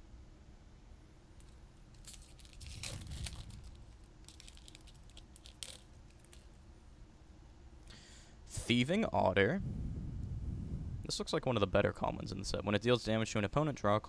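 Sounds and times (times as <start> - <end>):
foil wrapper tearing and crinkling: 1.9 - 6.6.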